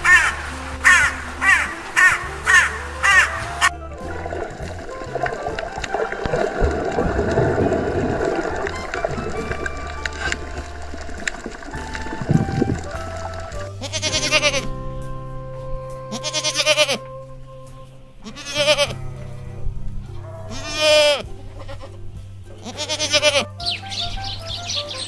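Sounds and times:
background music: 0.0s - 25.0s
goat kid bleating: 13.8s - 14.7s, 16.1s - 17.1s, 18.2s - 19.0s, 20.5s - 22.0s, 22.6s - 23.6s
birds chirping: 21.0s - 25.0s.

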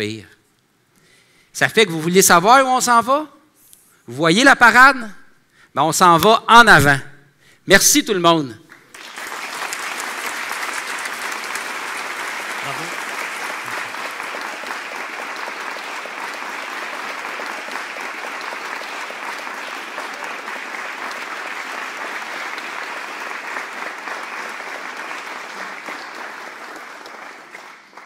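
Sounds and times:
audience applauding: 8.7s - 28.0s.

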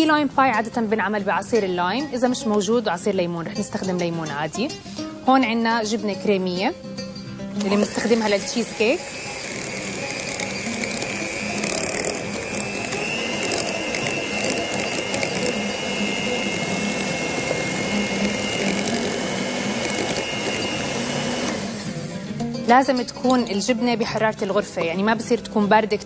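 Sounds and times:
hand mixer churning: 7.6s - 22.1s
high motor whine: 7.6s - 22.2s.

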